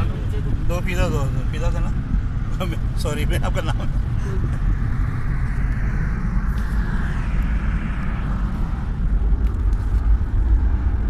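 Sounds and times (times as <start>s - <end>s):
tyres rumbling on road: 0.0s - 6.4s
wind hiss over car: 0.0s - 11.0s.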